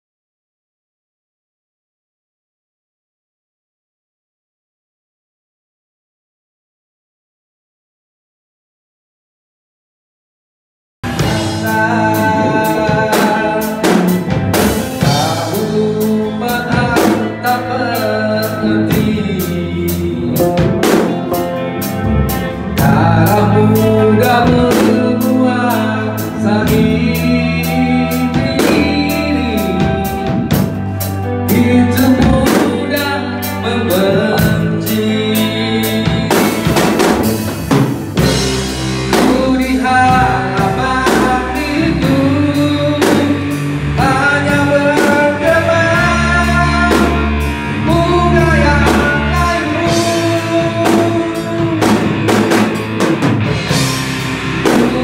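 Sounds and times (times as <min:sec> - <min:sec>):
drum kit beat: 0:11.0 - 0:55.0
electric bass: 0:11.0 - 0:55.0
electric guitar: 0:11.0 - 0:55.0
person singing: 0:11.1 - 0:53.1, 0:53.7 - 0:55.0.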